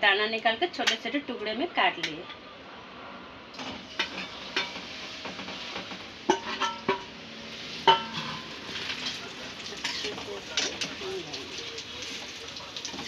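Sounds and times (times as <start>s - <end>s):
light sizzle: 3.5s - 13.0s
metal spatula scraping pan: 3.6s - 11.0s.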